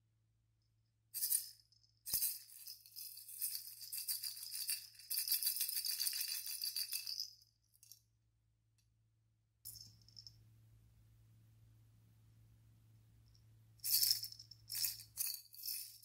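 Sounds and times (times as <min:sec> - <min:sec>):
plastic baby rattle shaking: 0:02.1 - 0:07.3.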